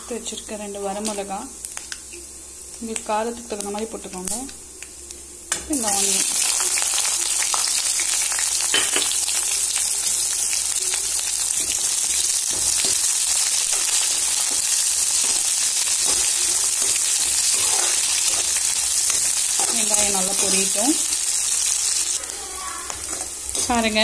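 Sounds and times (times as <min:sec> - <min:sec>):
onions sizzling in hot oil: 0:00.0 - 0:24.0
metal spoon scraping a pan: 0:13.7 - 0:20.8.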